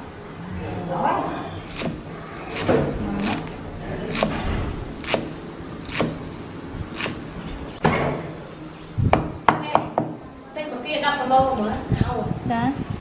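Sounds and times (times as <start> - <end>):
cleaver chopping on wooden board: 1.7 - 3.5, 4.1 - 4.4, 5.0 - 6.2.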